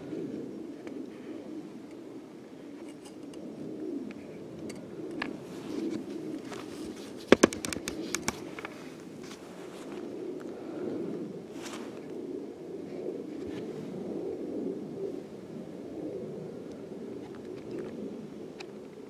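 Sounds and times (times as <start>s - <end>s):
camera rubbing on clothing: 5.4s - 10.1s.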